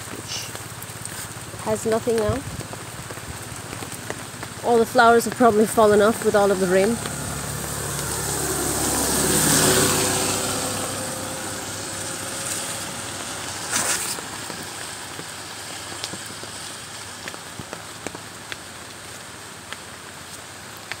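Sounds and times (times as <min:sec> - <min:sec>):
vehicle passing on wet road: 0:00.0 - 0:21.0.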